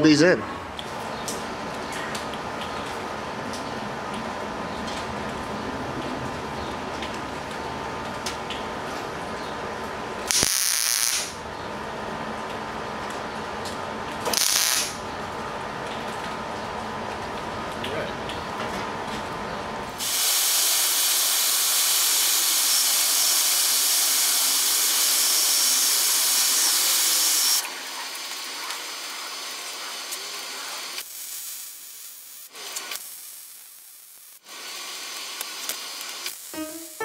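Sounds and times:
welding arc hissing: 0:10.3 - 0:11.4, 0:14.3 - 0:15.0, 0:20.0 - 0:37.0.

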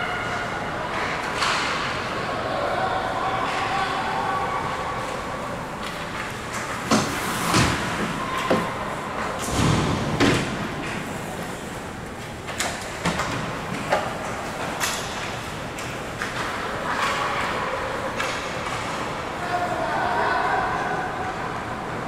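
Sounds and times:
hockey sticks clacking: 0:12.2 - 0:19.2.

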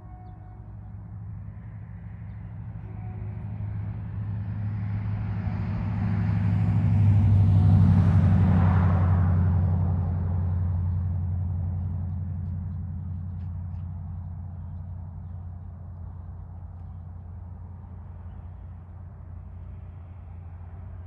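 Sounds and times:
low engine hum: 0:00.0 - 0:21.0
vehicle passing close: 0:04.1 - 0:13.2.

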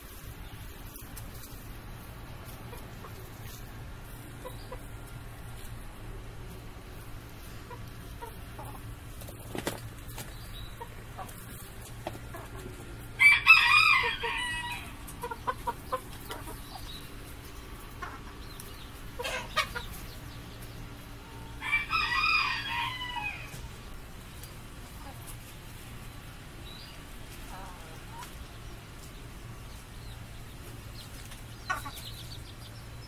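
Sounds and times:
chicken clucking: 0:00.1 - 0:33.0
rooster crowing: 0:13.2 - 0:15.0, 0:21.4 - 0:23.5.

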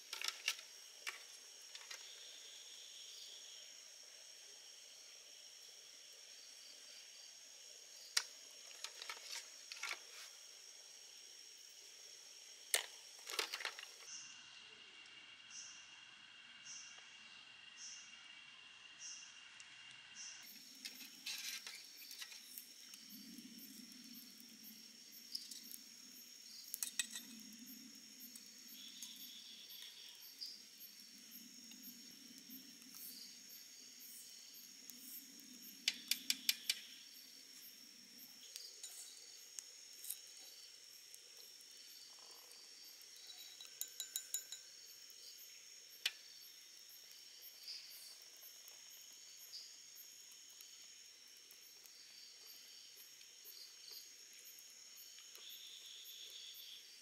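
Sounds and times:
night insects chirring: 0:00.0 - 0:57.0
shells and utensils clinking on pot: 0:43.2 - 0:44.8.

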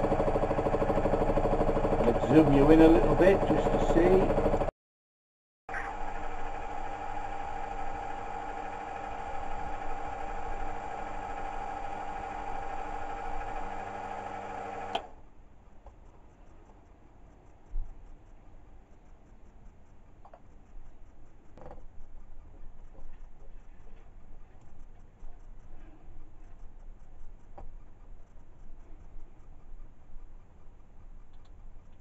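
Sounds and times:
milling machine hum: 0:00.0 - 0:04.7, 0:05.7 - 0:15.1.

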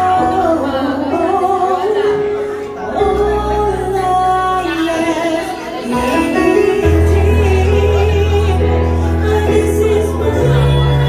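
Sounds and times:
amplified backing music: 0:00.0 - 0:11.0
woman singing a slow ballad: 0:00.0 - 0:11.0
deep sustained bass notes: 0:06.8 - 0:11.0.

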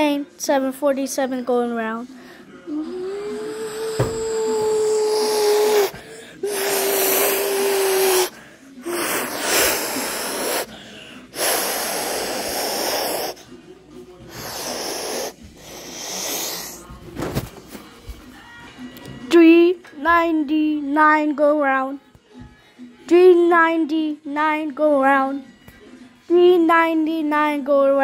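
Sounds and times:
child humming a held tone: 0:02.7 - 0:08.3
child making breathy whooshes: 0:02.9 - 0:08.3.

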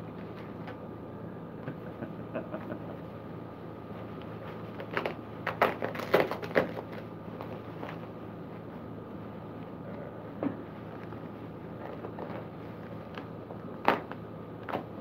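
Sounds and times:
air conditioning hum: 0:00.0 - 0:15.0
plastic packaging crinkling: 0:04.6 - 0:08.0.

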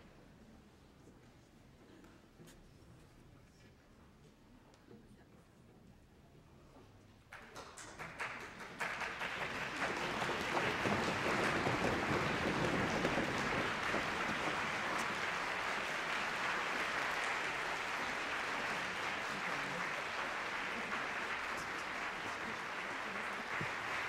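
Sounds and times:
audience applauding: 0:07.4 - 0:24.0.

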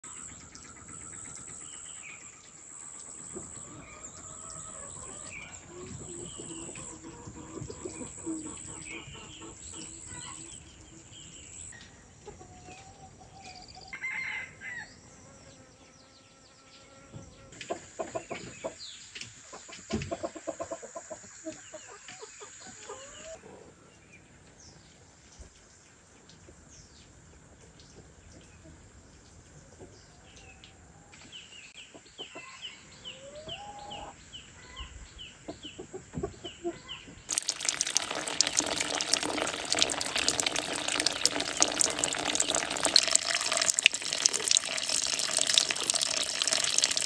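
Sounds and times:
small birds chirping: 0:00.0 - 0:14.0, 0:31.3 - 0:47.0
hens clucking: 0:03.3 - 0:10.6, 0:19.6 - 0:23.7
rooster crowing: 0:14.0 - 0:14.9.

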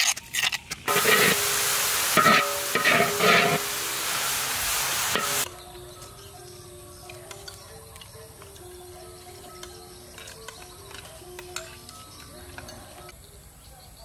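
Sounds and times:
metal spoon scraping stone mortar: 0:00.0 - 0:05.5, 0:08.4 - 0:12.9
food sizzling in hot oil: 0:00.9 - 0:05.5
soft background music: 0:05.4 - 0:14.0.

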